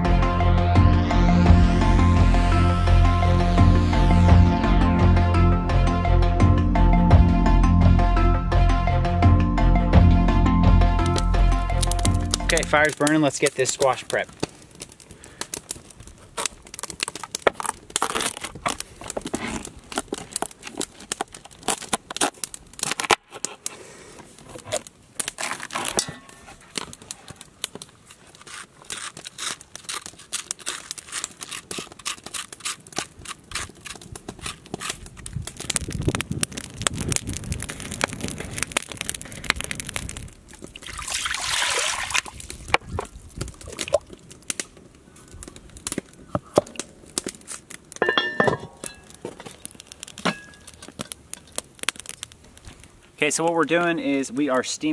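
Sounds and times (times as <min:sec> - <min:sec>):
water pouring into pot: 0:40.8 - 0:42.4.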